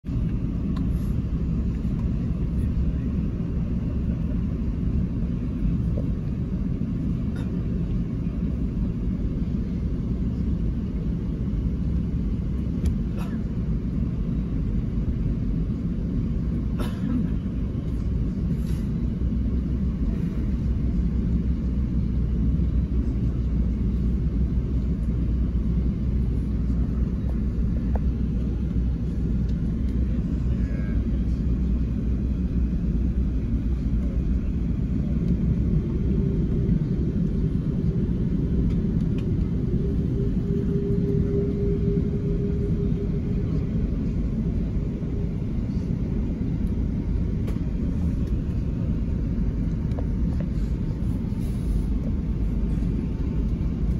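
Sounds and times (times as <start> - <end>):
airplane cabin rumble while taxiing: 0.0 - 53.9
steady hum: 0.0 - 53.9.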